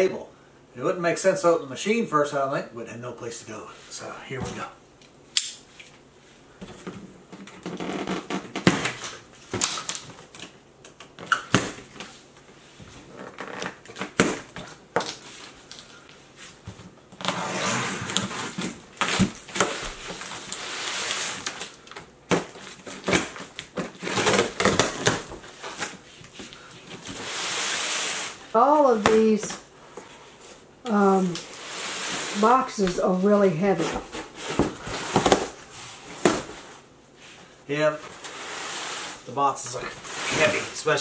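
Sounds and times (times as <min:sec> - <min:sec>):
sharp snaps and scrapes: 0:05.0 - 0:06.0
cardboard tearing and rustling: 0:17.1 - 0:29.5, 0:30.9 - 0:36.8, 0:39.8 - 0:41.0
box cutter cutting tape: 0:22.4 - 0:25.3.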